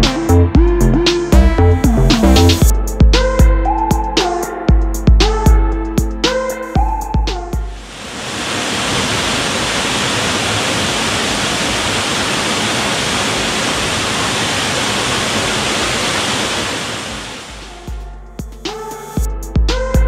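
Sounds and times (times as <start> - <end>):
waterfall rushing into pool: 7.7 - 18.0.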